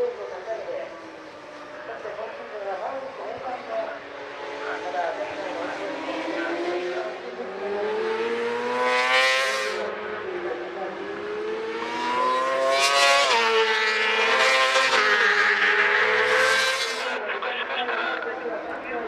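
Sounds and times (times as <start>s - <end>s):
racing motorcycle engines revving: 0.0s - 19.0s.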